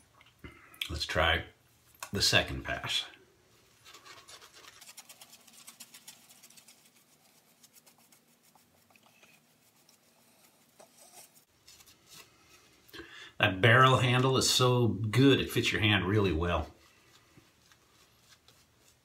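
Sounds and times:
shaving brush swishing on face: 3.7 - 12.8, 16.2 - 19.0.

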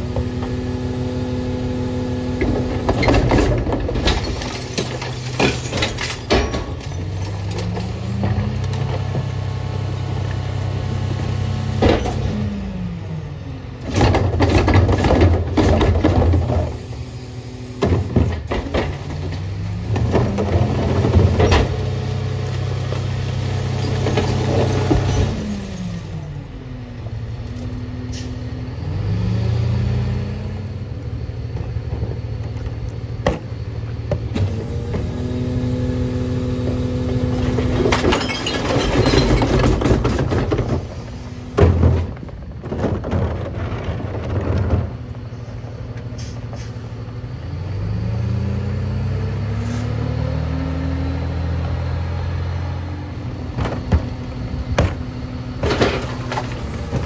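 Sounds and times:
garbage truck engine revving: 0.0 - 26.8, 27.8 - 32.4, 33.0 - 45.4, 46.1 - 57.0
cart rattling into hopper: 36.7 - 45.1, 53.5 - 57.0.

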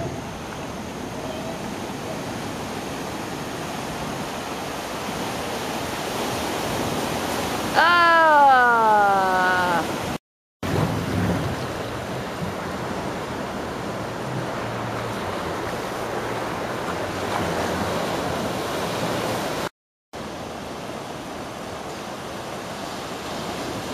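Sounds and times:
waves crashing: 0.0 - 23.9.

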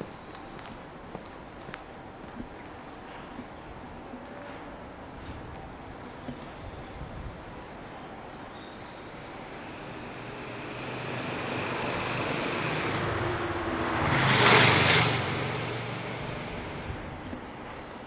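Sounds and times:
motor vehicle passing: 9.4 - 17.2.

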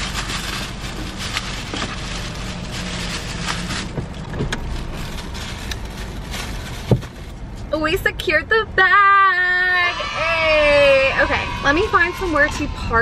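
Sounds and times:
plastic bag crinkling: 0.0 - 7.7
car engine idling: 0.0 - 13.0.

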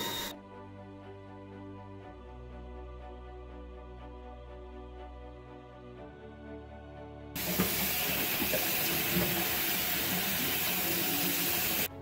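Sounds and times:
tap water splashing into sink: 7.4 - 11.9.

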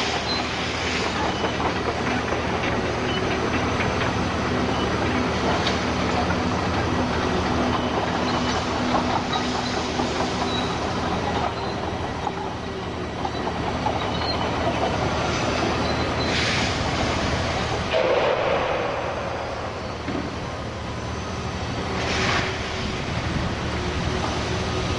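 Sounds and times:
heavy machine running: 0.0 - 24.9
short hydraulic hisses: 16.2 - 16.9, 21.9 - 23.0.

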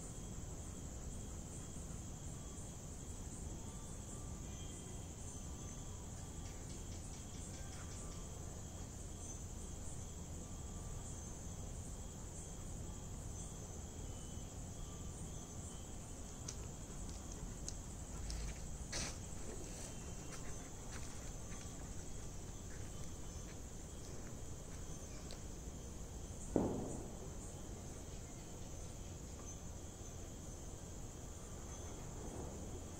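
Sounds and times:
crickets chirring: 0.0 - 32.9.

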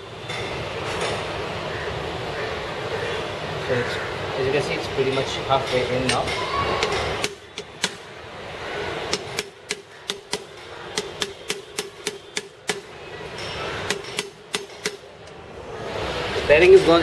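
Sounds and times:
hammer tapping metal: 5.2 - 8.0, 9.1 - 15.4.

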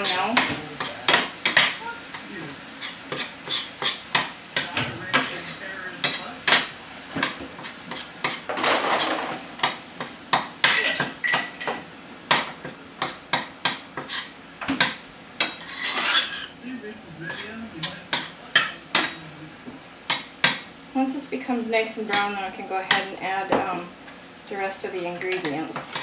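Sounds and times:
spatula scraping a frying pan: 2.7 - 4.1, 5.2 - 9.3, 14.0 - 14.4, 15.4 - 16.5.

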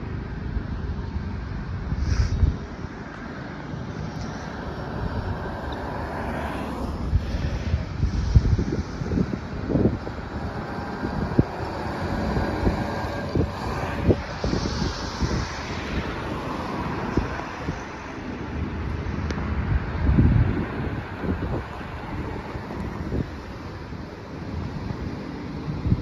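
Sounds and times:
fire truck passing: 0.0 - 26.0
road traffic passing: 0.0 - 26.0
wind buffeting microphone: 0.0 - 26.0
tyre hiss: 1.9 - 18.4.

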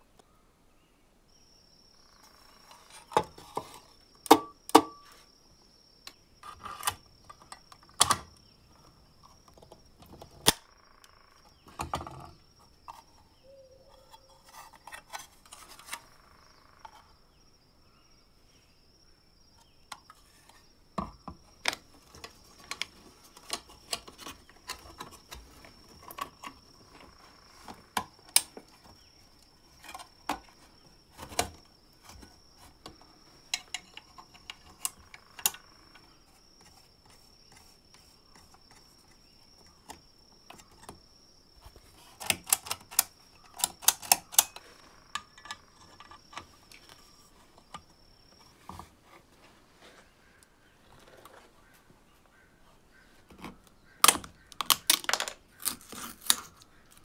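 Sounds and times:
small metal clicks and snaps: 42.2 - 47.0.

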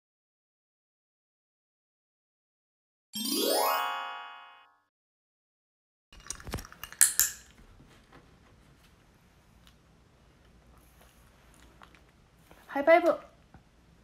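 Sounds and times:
upward run of bright notes: 3.2 - 4.8.

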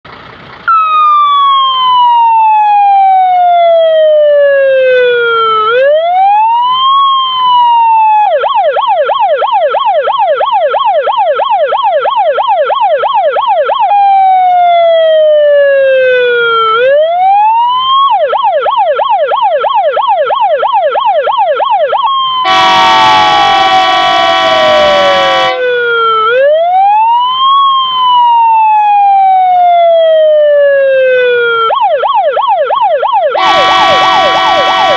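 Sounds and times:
fire engine siren wailing: 0.1 - 34.9
horn blast: 22.4 - 25.8, 33.4 - 34.9.

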